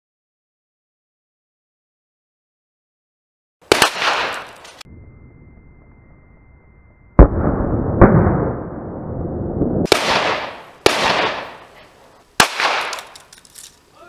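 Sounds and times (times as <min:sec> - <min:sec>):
pistol shots with echo: 0:03.7 - 0:04.6, 0:09.9 - 0:11.7, 0:12.4 - 0:13.2.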